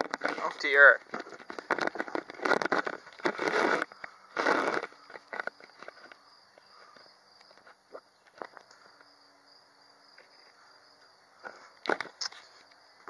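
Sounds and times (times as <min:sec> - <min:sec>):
insect chirping: 0:00.0 - 0:13.0
camera handling rustling: 0:01.0 - 0:06.2.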